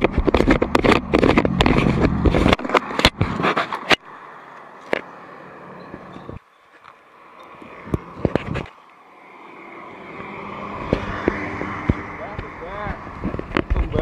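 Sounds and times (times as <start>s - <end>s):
roadside traffic rumble: 0.0s - 14.0s.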